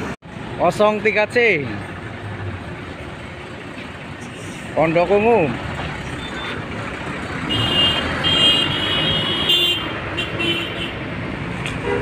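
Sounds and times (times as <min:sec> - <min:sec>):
multi-tone horn blasts: 0:07.5 - 0:11.0, 0:11.8 - 0:12.0.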